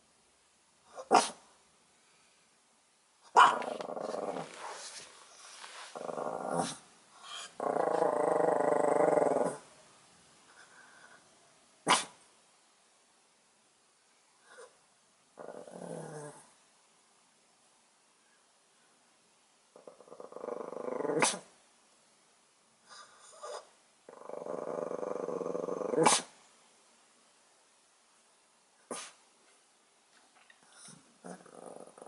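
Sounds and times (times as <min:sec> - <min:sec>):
small dog barking: 0:01.0 - 0:01.4, 0:03.3 - 0:03.8, 0:11.8 - 0:12.2, 0:26.0 - 0:26.3, 0:28.9 - 0:29.2
dog growling: 0:03.4 - 0:05.1, 0:05.9 - 0:09.6, 0:15.4 - 0:16.5, 0:19.7 - 0:21.5, 0:23.3 - 0:26.3, 0:30.8 - 0:32.0.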